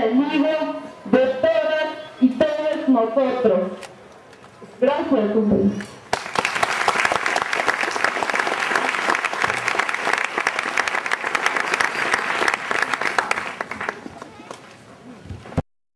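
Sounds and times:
audience applauding: 0:06.1 - 0:14.6.

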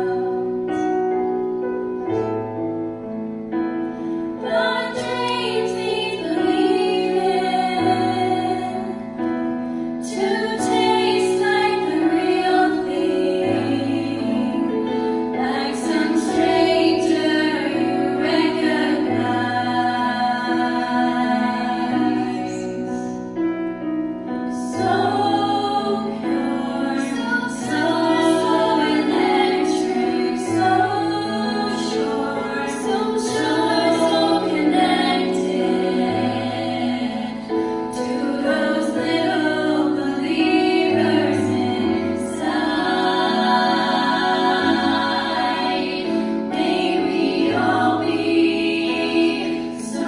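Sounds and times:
women singing in harmony: 0:00.0 - 0:01.5, 0:04.1 - 0:23.4, 0:24.4 - 0:50.0.

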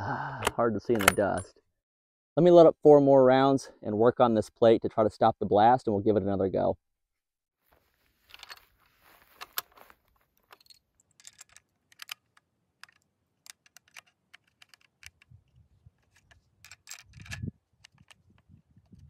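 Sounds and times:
cartridges clicking into rifle magazine: 0:10.5 - 0:15.3, 0:16.0 - 0:18.2.

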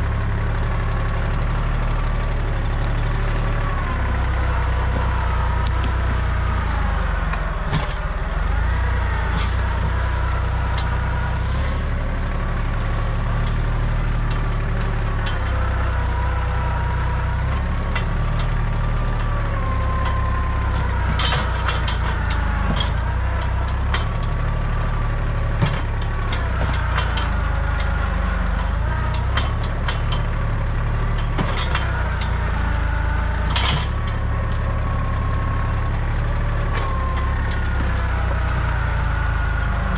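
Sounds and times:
tractor diesel engine running: 0:00.0 - 0:39.9
wood and branches snapping: 0:01.4 - 0:25.0.

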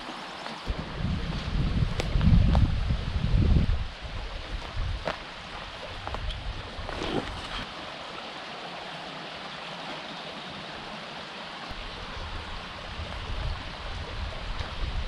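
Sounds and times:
creek running: 0:00.0 - 0:15.0.

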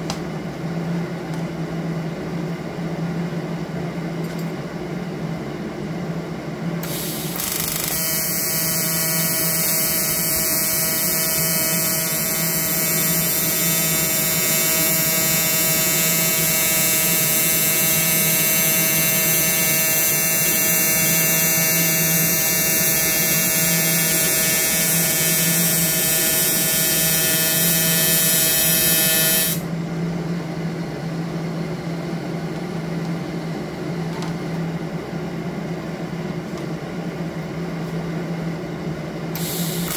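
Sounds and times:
welding arc buzzing: 0:06.8 - 0:29.7, 0:39.4 - 0:39.9.

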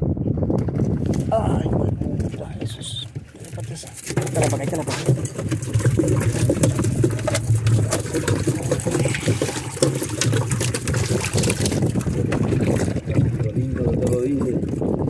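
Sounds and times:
fish flapping on wet deck: 0:03.1 - 0:14.0.

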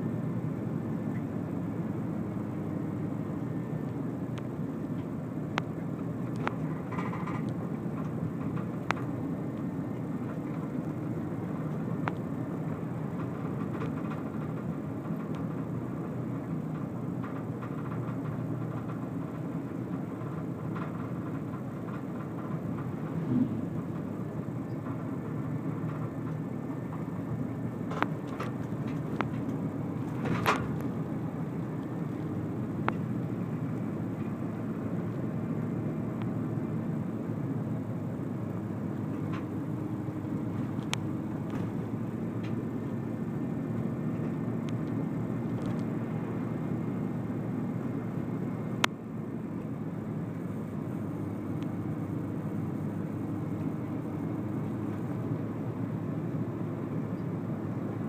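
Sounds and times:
car cabin road rumble: 0:00.0 - 0:58.0
light clicks and ticks: 0:03.9 - 0:11.0, 0:11.6 - 0:12.4, 0:13.1 - 0:15.7, 0:27.9 - 0:31.0, 0:40.6 - 0:41.8, 0:44.1 - 0:45.9.

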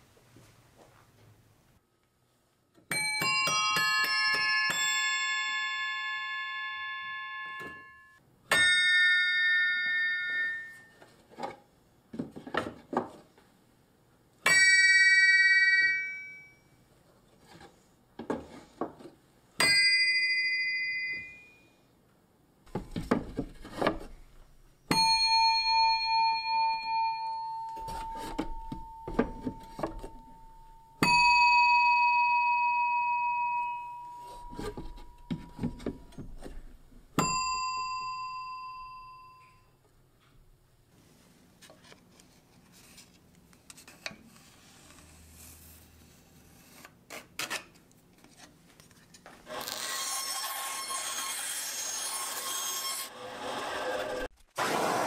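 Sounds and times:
hammer-struck metal bells ringing: 0:02.9 - 0:10.9, 0:24.9 - 0:36.2, 0:37.2 - 0:39.7.

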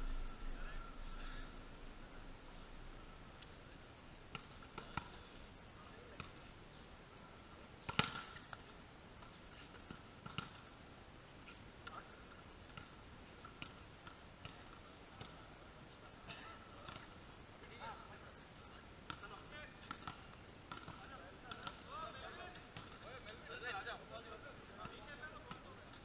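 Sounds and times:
faint high whine: 0:00.0 - 0:26.0
volleyball hit and bouncing on concrete: 0:04.3 - 0:05.2, 0:07.9 - 0:08.6, 0:09.2 - 0:10.6, 0:12.7 - 0:15.4, 0:16.3 - 0:17.1, 0:19.1 - 0:21.8, 0:22.7 - 0:23.4, 0:24.8 - 0:26.0.

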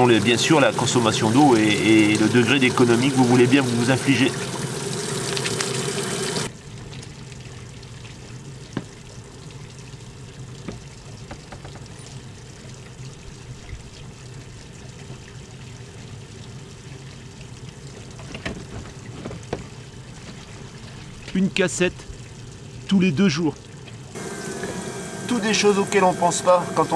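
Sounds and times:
water running through a hose: 0:00.0 - 0:26.9
steady hum: 0:24.2 - 0:26.9.

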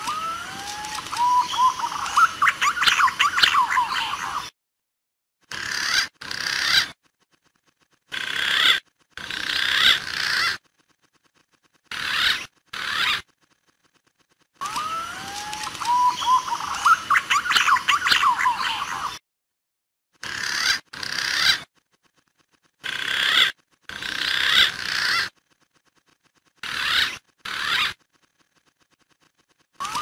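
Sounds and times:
pigeon whistling calls: 0:00.0 - 0:04.5, 0:14.6 - 0:19.2, 0:29.8 - 0:30.0.

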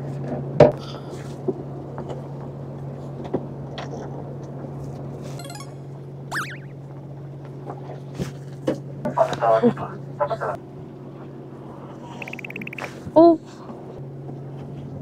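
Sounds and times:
brief high chirp: 0:12.2 - 0:12.9.

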